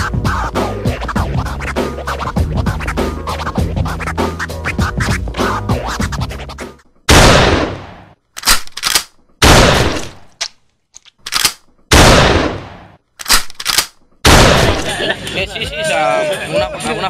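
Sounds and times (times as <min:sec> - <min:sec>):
loud sharp bangs: 0:07.1 - 0:08.2, 0:09.4 - 0:10.2, 0:11.9 - 0:13.5, 0:14.2 - 0:14.9.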